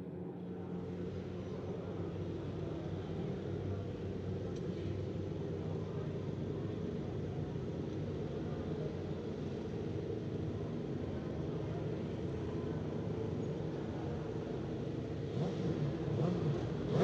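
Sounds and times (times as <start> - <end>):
motorcycle engines idling: 0.0 - 17.0.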